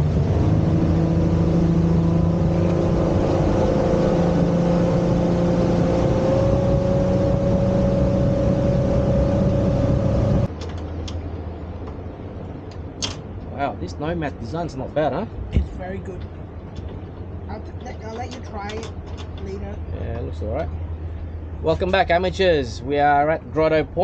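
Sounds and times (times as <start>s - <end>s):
churning water: 0.0s - 10.5s
motorboat engine droning: 0.0s - 24.0s.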